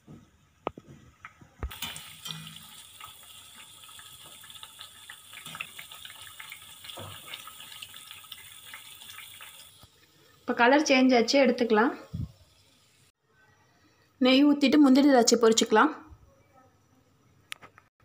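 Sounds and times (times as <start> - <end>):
bread sizzling in hot oil: 1.6 - 13.2.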